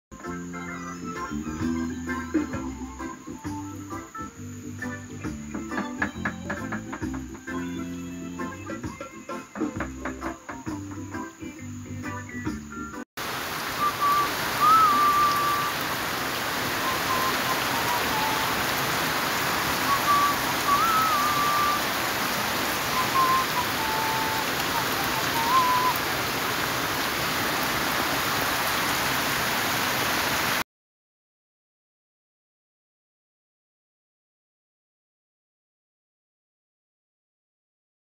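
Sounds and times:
steady rain falling: 1.4s - 8.6s, 13.2s - 30.6s
short thin whistled notes: 13.8s - 15.8s, 16.8s - 18.5s, 19.8s - 21.9s, 22.9s - 26.0s.

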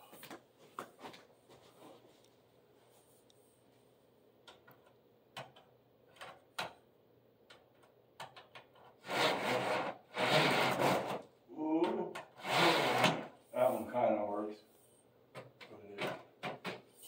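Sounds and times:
blind scraping along rails: 8.8s - 11.3s, 12.3s - 14.0s.

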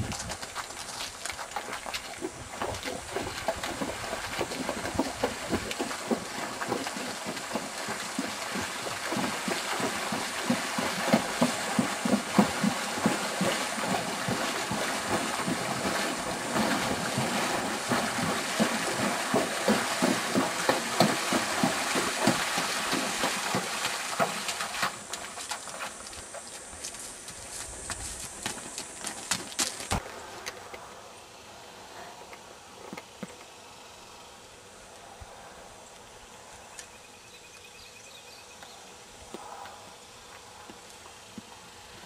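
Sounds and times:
hooves splashing water: 0.0s - 30.1s.

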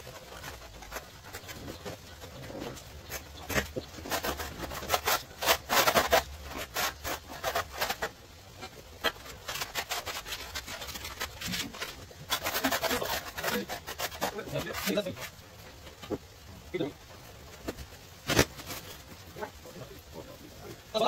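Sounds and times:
tiling tool scraping tile: 0.0s - 16.2s.

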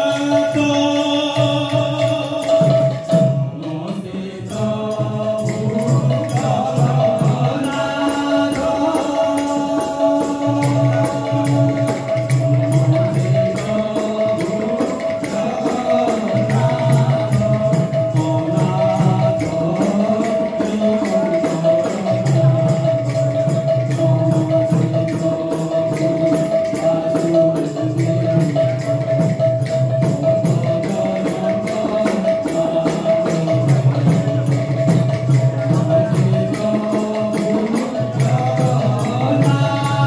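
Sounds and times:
group singing devotional music: 0.0s - 29.4s, 30.0s - 40.0s
jingling percussion: 0.0s - 40.0s.

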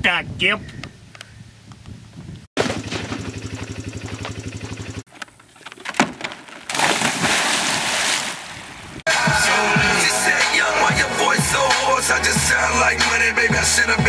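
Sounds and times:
water churning: 6.7s - 9.0s
water splash: 6.7s - 9.0s.

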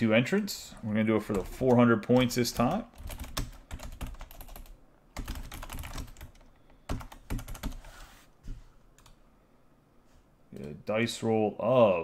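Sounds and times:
keyboard typing: 1.3s - 7.9s.

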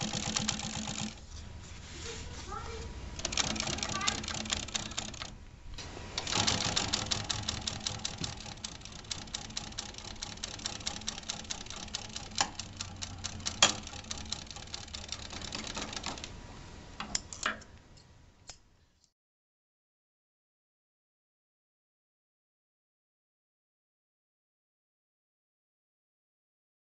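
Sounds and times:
sewing machine clatter: 0.0s - 1.3s, 3.2s - 5.4s, 6.2s - 16.4s.

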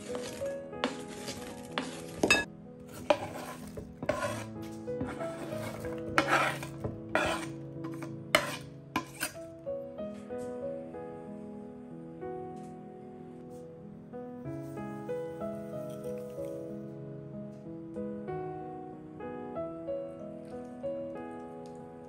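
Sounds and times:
utensil stirring and scraping bowl: 0.0s - 9.4s.

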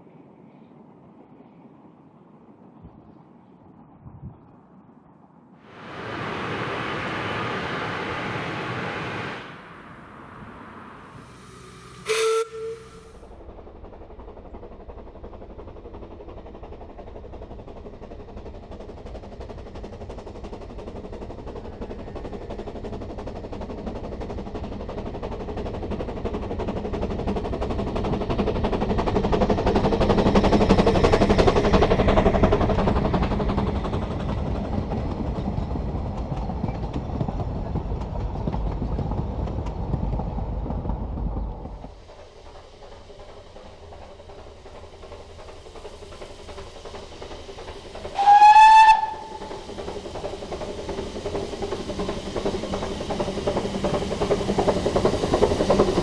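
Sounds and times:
train carriages rolling by: 5.7s - 56.0s
steam locomotive exhaust beats: 8.0s - 56.0s
steam whistle toot: 11.3s - 13.2s, 48.2s - 49.6s.

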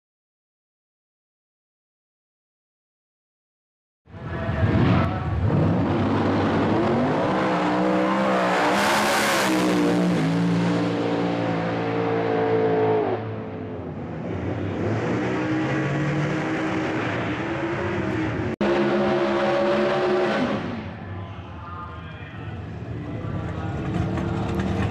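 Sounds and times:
drag-racing engine at full throttle: 4.2s - 21.0s, 22.6s - 24.9s.

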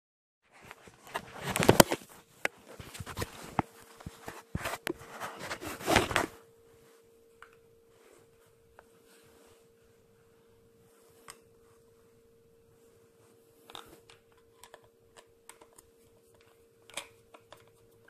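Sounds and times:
faint steady hum: 0.5s - 18.0s
phone handling rubbing and knocks: 2.6s - 6.4s.

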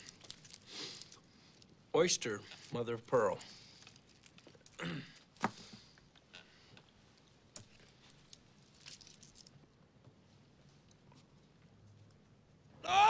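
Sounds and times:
small handling sounds: 0.0s - 12.5s.

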